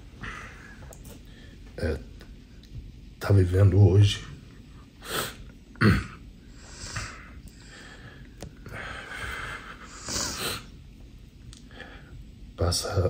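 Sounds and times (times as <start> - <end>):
man sniffing: 8.8 - 10.7.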